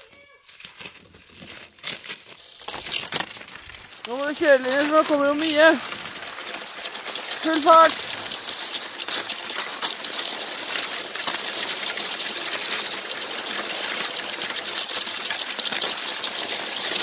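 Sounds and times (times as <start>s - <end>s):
small crunches and clicks: 0.0s - 12.8s
skis hissing over snow: 0.8s - 17.0s.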